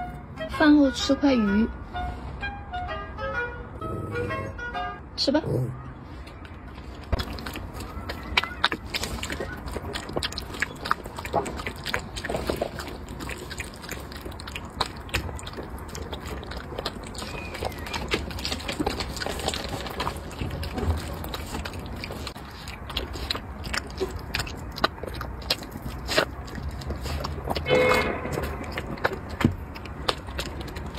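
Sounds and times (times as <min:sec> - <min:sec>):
dog chewing and licking food: 0:06.7 - 0:30.9.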